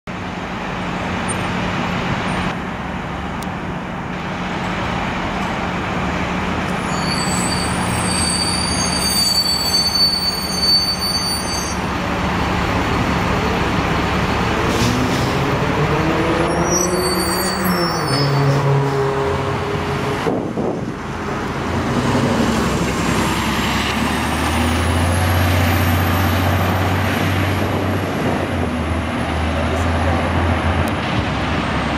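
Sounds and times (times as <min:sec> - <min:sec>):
bus diesel engine accelerating: 0:00.1 - 0:31.9
high squeal: 0:06.7 - 0:11.9, 0:16.4 - 0:18.8.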